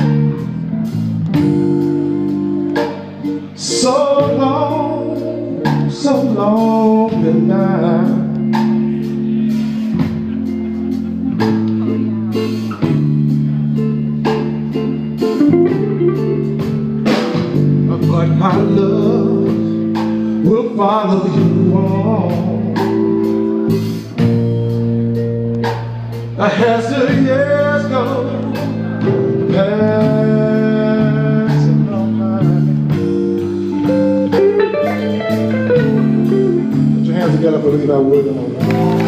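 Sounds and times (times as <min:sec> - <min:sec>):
guitar chords: 0:00.0 - 0:39.0
man singing: 0:03.4 - 0:10.5, 0:17.8 - 0:23.4, 0:26.3 - 0:33.5, 0:37.0 - 0:38.8.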